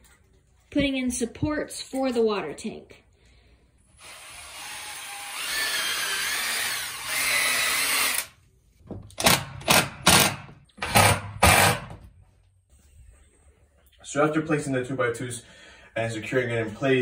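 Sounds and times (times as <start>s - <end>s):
cordless drill into wood: 4.0s - 8.3s, 9.2s - 11.9s.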